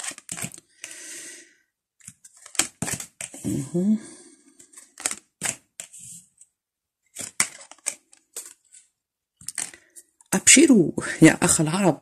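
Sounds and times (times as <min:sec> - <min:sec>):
cards clicking on tabletop: 0:04.9 - 0:06.0.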